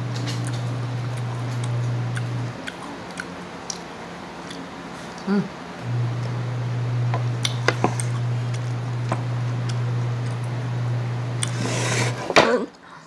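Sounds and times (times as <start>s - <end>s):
steady low hum: 0.0s - 13.0s
crunchy chewing clicks: 0.2s - 5.3s, 7.4s - 10.4s.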